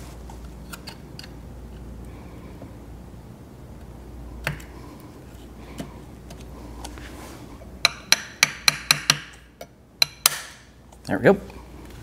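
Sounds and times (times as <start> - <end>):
hammer tapping metal punch: 7.8 - 10.6.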